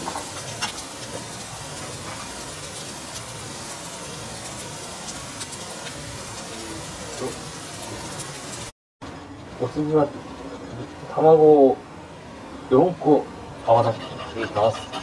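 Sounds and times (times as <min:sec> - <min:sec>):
mushrooms sizzling in a frying pan: 0:00.0 - 0:08.7.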